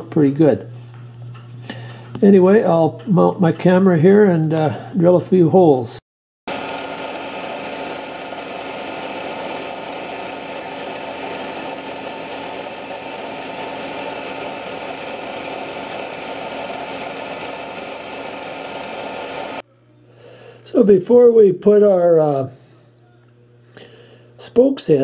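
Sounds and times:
drill press boring wood: 0:06.5 - 0:19.6.

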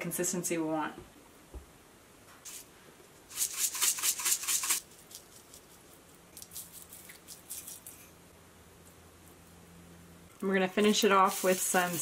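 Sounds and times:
spice shaker rattling into pot: 0:03.3 - 0:05.8, 0:10.9 - 0:12.0.

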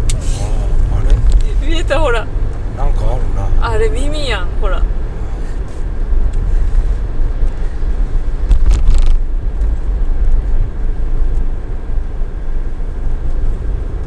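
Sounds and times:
car road noise rumble: 0:00.0 - 0:14.0
sharp crackling noise: 0:06.2 - 0:10.6.

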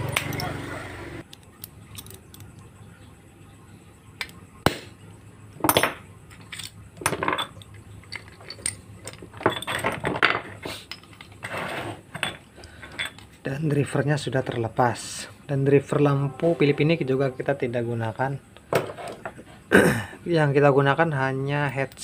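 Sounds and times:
metal and plastic parts clattering: 0:01.6 - 0:02.6, 0:05.6 - 0:13.4.

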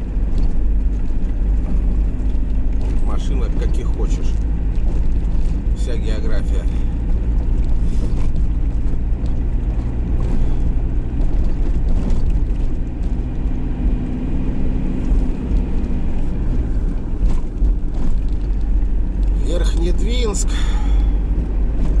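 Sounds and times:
engine drone: 0:00.0 - 0:22.0
tyre and wind noise: 0:00.0 - 0:22.0.

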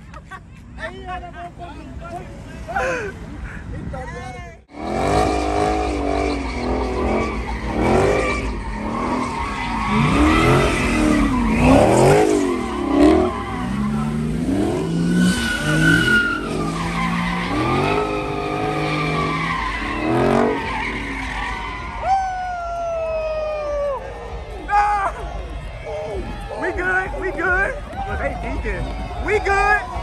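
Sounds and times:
car engine revving: 0:04.7 - 0:22.0
tyres squealing on pavement: 0:04.9 - 0:23.8.

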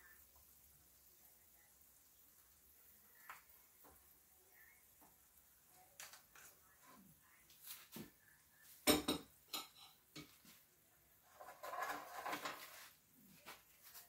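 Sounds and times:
spoon clanking against a pot: 0:08.9 - 0:10.3
spoon scraping a pot: 0:11.2 - 0:13.0.

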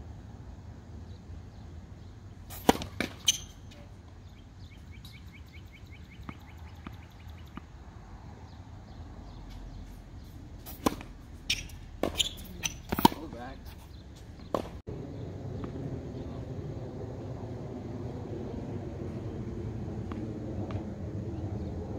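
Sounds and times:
tennis racket hitting ball: 0:02.5 - 0:03.6, 0:10.6 - 0:14.8.

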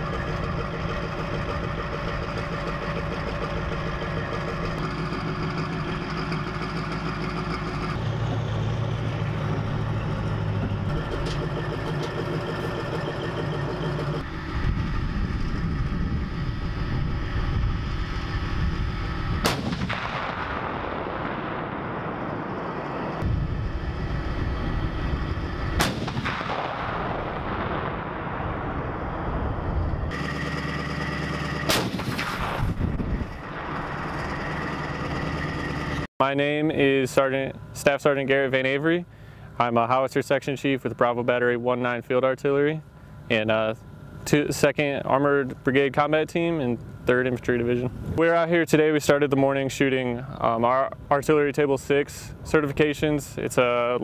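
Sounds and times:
heavy vehicle engines running: 0:00.0 - 0:54.0
cannon shots: 0:19.4 - 0:23.4, 0:25.6 - 0:35.8.

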